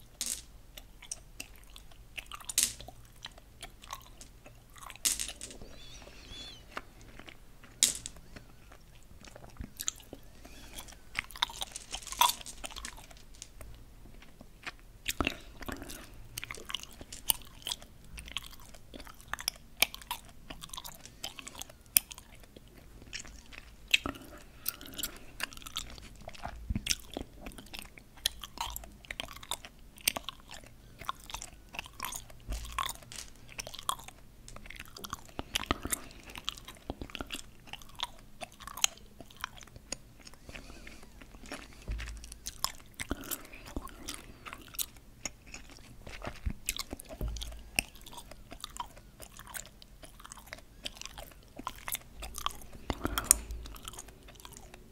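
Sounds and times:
candy-coated gum pieces clicking: 0:00.1 - 0:13.7, 0:14.6 - 0:40.6.

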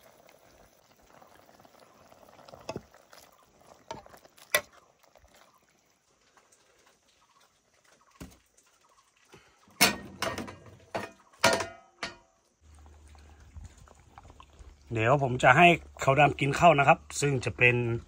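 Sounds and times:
pot bubbling: 0:00.0 - 0:18.0
cookware knocking: 0:09.8 - 0:12.2.

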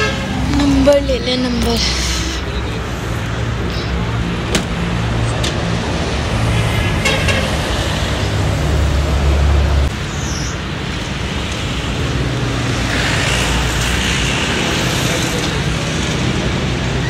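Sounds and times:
road traffic: 0:00.0 - 0:17.0.

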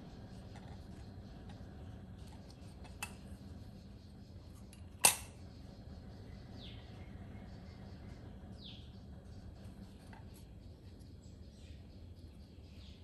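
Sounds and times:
metallic click of moka pot: 0:04.7 - 0:05.4.

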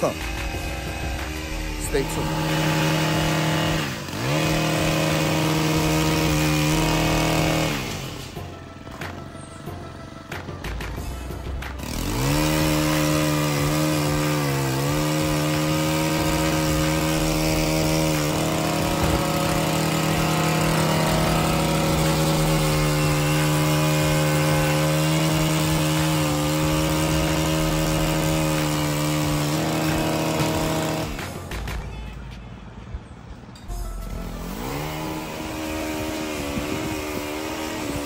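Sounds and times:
chainsaw cutting tree limbs: 0:00.0 - 0:31.7, 0:34.0 - 0:38.0.

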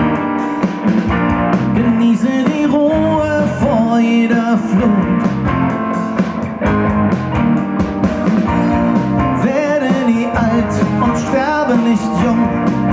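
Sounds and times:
acoustic guitar: 0:00.0 - 0:12.9
drums: 0:00.0 - 0:12.9
electric bass: 0:00.0 - 0:12.9
electric guitar: 0:00.0 - 0:12.9
man singing: 0:01.6 - 0:05.4, 0:09.2 - 0:12.9.

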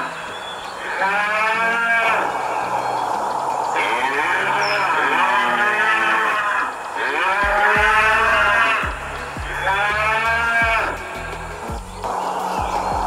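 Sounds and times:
background music with low beats: 0:00.0 - 0:13.0
cattle mooing: 0:00.8 - 0:02.4, 0:03.8 - 0:08.8.

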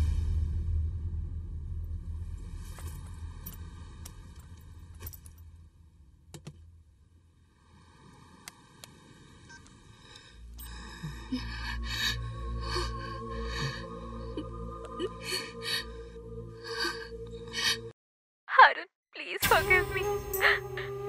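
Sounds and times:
low sustained drone: 0:00.0 - 0:05.2, 0:10.3 - 0:17.9
low rumble: 0:00.0 - 0:07.5.

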